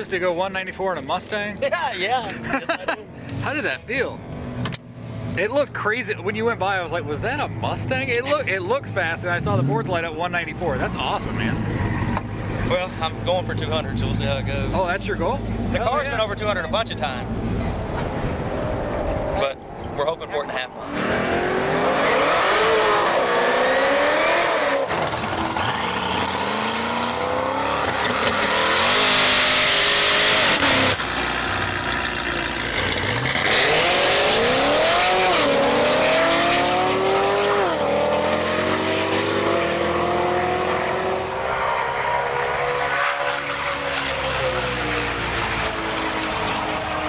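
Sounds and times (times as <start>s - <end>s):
cars accelerating hard: 20.4s - 47.0s.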